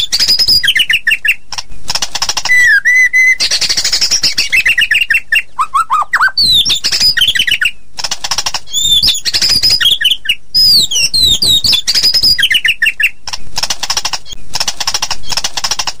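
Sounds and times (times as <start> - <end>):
songbird singing whistled trills: 0.0 - 1.5, 2.5 - 7.9, 8.7 - 13.2
bird rattling chatter: 0.0 - 2.8, 3.4 - 5.0, 6.4 - 16.0.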